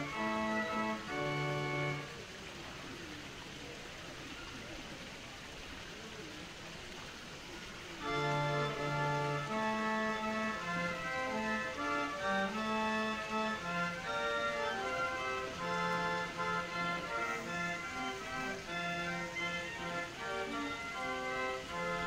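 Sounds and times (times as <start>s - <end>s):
pipe organ held chords: 0.0s - 2.1s, 8.0s - 22.0s
water rushing: 0.0s - 22.0s.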